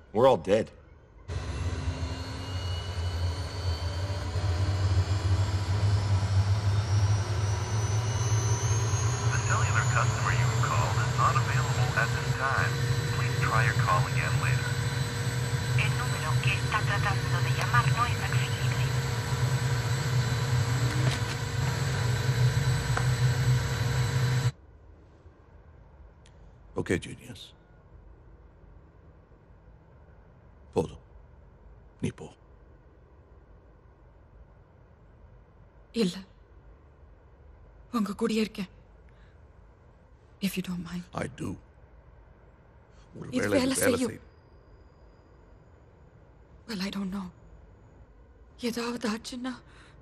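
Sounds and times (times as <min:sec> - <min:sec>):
faint high whine rising in pitch: 0:00.0 - 0:24.8, 0:42.0 - 0:49.4
jet engines droning in cabin: 0:00.0 - 0:26.2, 0:42.2 - 0:50.0.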